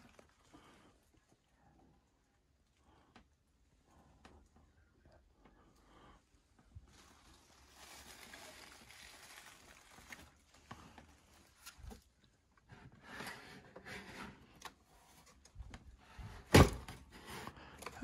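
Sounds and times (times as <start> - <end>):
faint rustling: 0.0 - 13.4.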